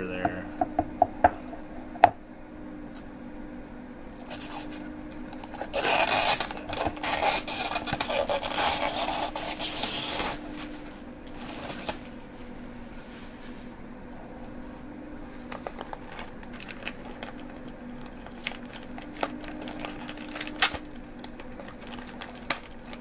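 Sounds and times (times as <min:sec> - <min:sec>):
tape peeling off: 0:04.2 - 0:04.8, 0:05.4 - 0:13.5, 0:15.6 - 0:23.0
plastic rustling: 0:05.4 - 0:13.8, 0:15.3 - 0:23.0.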